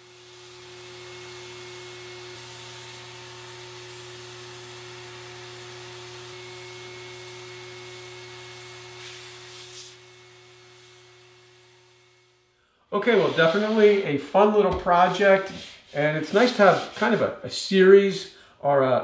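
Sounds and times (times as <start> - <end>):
spray gun hissing: 15.1 - 17.0.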